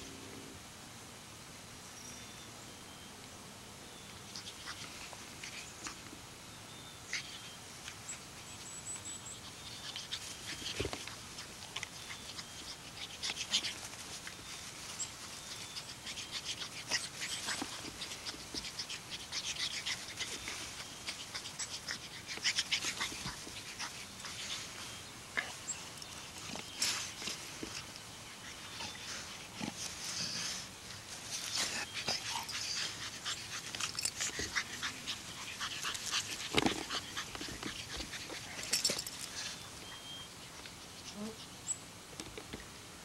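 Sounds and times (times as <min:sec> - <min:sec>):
puppy noises: 0:04.2 - 0:06.2, 0:07.0 - 0:41.7
grass rustling: 0:04.2 - 0:42.7
faint bird chirps: 0:39.4 - 0:40.6.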